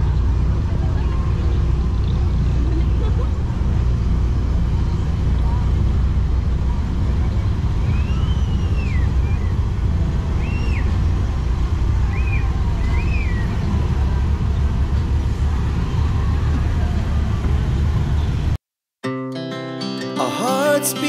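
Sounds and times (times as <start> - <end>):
boat engine rumbling: 0.0 - 18.6
high whistling calls: 7.3 - 9.7, 10.4 - 11.0, 12.1 - 13.6.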